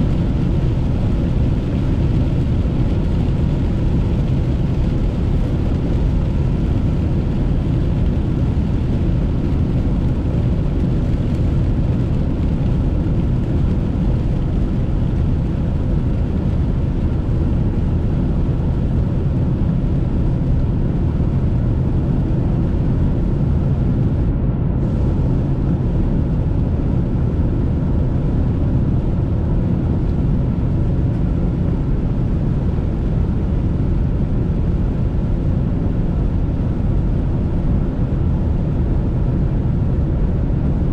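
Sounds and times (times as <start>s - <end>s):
car driving on wet road: 0.0s - 24.2s.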